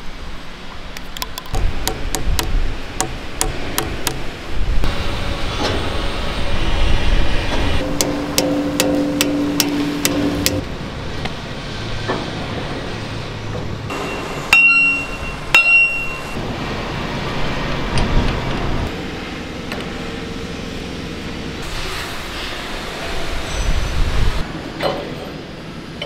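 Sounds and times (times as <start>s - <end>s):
hammer striking steel: 1.6s - 4.3s, 7.8s - 10.7s, 13.9s - 16.4s
loud ringing metal clangs: 7.8s - 10.7s, 13.9s - 16.4s.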